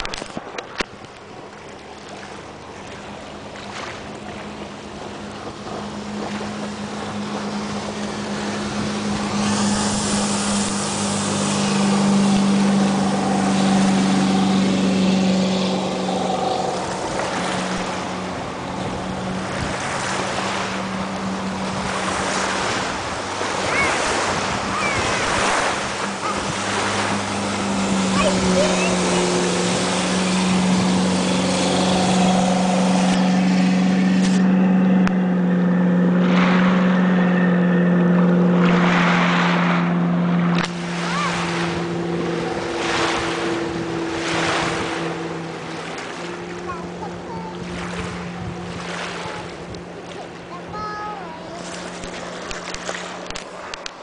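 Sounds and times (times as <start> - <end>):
boat wake and spray hissing: 0.0 - 54.0
speedboat engine drone: 0.0 - 54.0.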